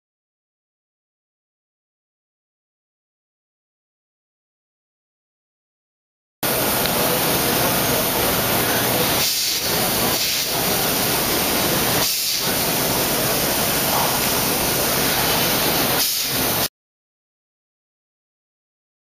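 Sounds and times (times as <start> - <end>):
machining centre hissing: 6.4 - 16.7.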